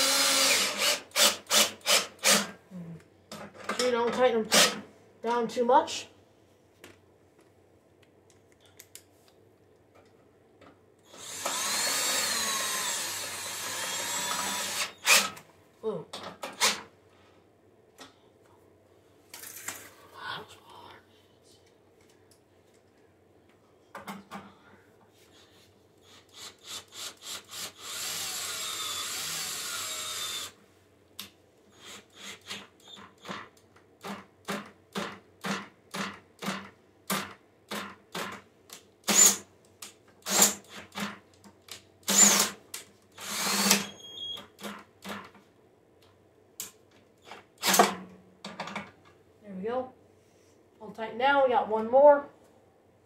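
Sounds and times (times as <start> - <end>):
cordless drill driving bolts: 0.0 - 2.5, 11.1 - 15.4, 26.4 - 30.6, 39.1 - 39.4, 40.2 - 41.1, 42.0 - 42.6, 43.2 - 44.0.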